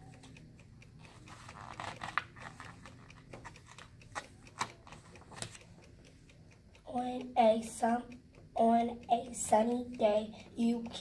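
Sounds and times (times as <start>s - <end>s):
book pages turning: 1.1s - 5.6s.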